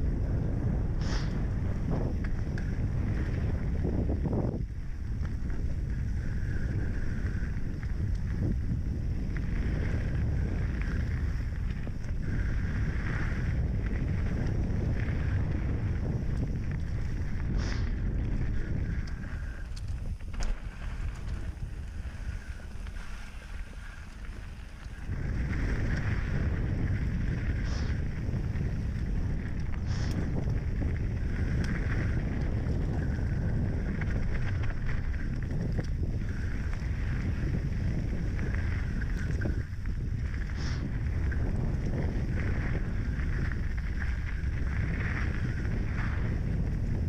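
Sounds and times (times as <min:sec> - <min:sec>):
bike clicks and rattles: 0:00.0 - 0:47.0
wind buffeting microphone: 0:00.0 - 0:47.0
tyres rolling over dirt: 0:00.6 - 0:47.0.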